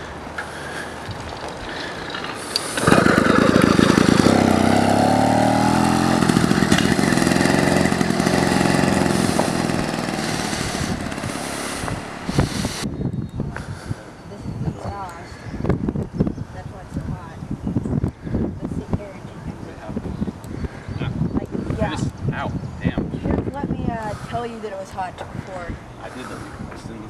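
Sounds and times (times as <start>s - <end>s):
small two-stroke bicycle engine: 1.8s - 12.9s.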